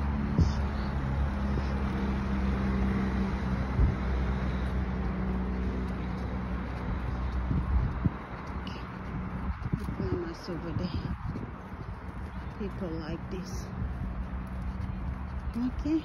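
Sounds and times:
car engine running at low speed: 0.0s - 12.6s.

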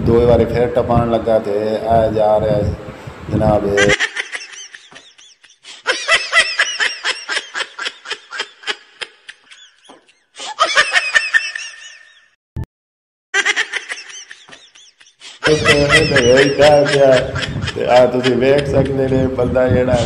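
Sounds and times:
hearty laughter: 3.8s - 12.4s, 13.4s - 20.0s.

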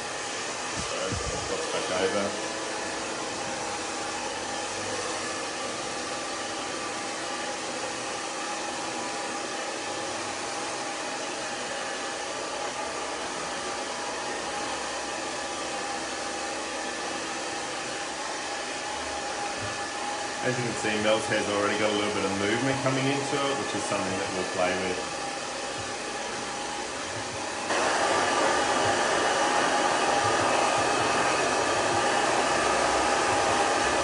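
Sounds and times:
hair dryer running: 0.0s - 34.0s.

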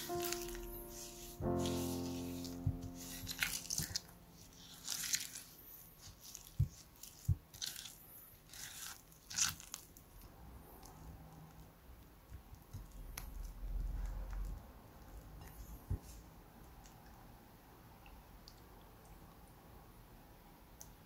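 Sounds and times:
spatula squishing and scraping: 0.0s - 10.0s.

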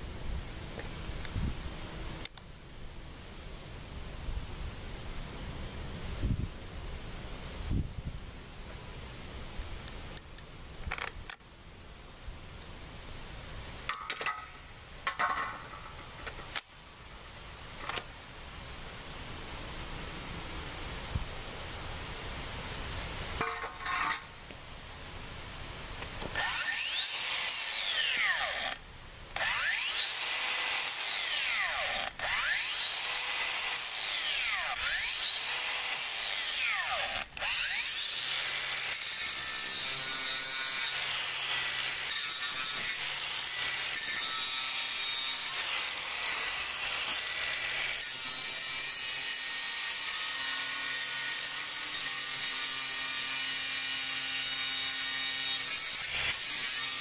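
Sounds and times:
angle grinder cutting steel: 26.3s - 57.0s.

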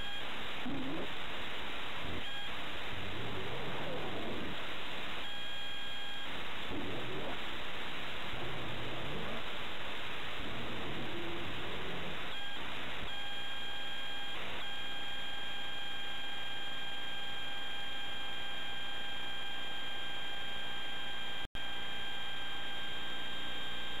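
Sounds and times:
tape playback hiss: 0.0s - 16.3s.

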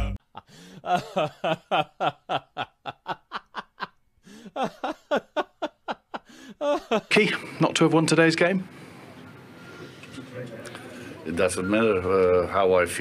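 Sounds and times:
person laughing: 0.0s - 7.2s.

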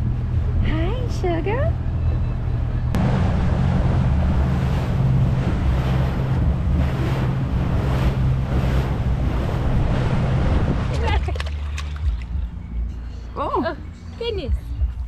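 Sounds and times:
boat engine drone: 0.0s - 14.9s
wind buffeting microphone: 2.9s - 12.6s
water rushing past hull: 3.0s - 12.6s.

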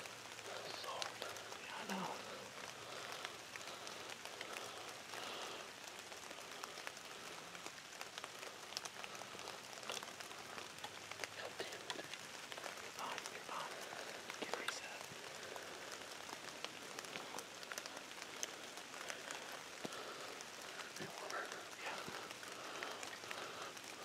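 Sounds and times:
soft ticks and crackles: 0.0s - 24.0s
steady hiss: 0.0s - 24.0s.

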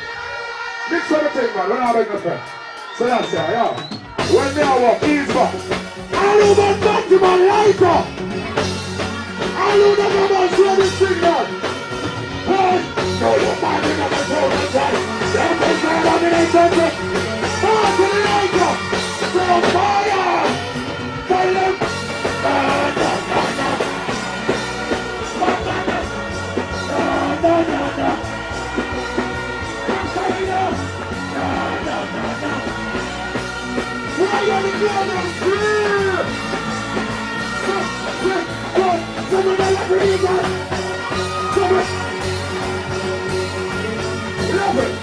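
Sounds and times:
loud backing music: 0.0s - 45.0s
man singing into microphone: 12.4s - 20.6s, 21.2s - 24.2s, 25.2s - 28.3s, 29.6s - 32.9s.

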